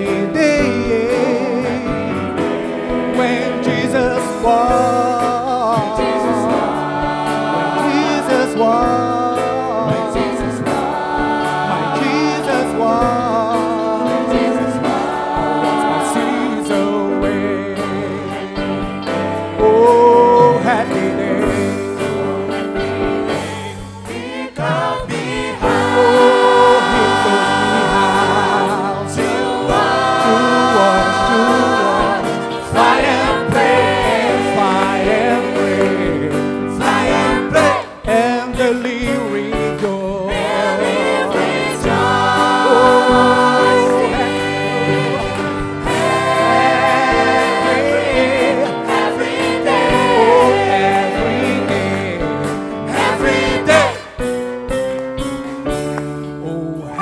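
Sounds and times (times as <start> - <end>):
man singing solo: 0.0 - 2.3, 3.0 - 6.7, 19.6 - 22.9, 25.7 - 29.4, 37.4 - 40.8, 56.4 - 57.0
choir singing: 0.0 - 54.4
instrumental accompaniment: 0.0 - 57.0.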